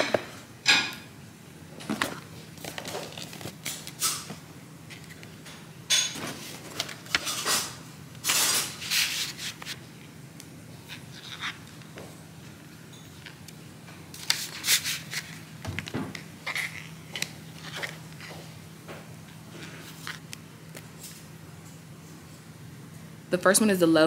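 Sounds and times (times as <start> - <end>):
cardboard boxes and paper rustling: 1.8 - 4.0.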